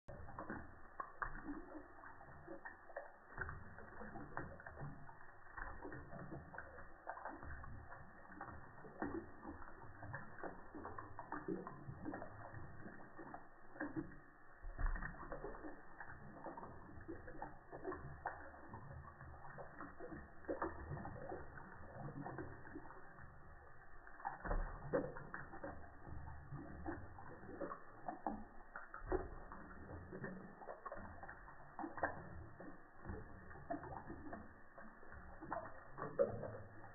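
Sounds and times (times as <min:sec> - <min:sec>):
water trickling from tap: 0:00.0 - 0:36.9
cat lapping water: 0:00.1 - 0:36.9.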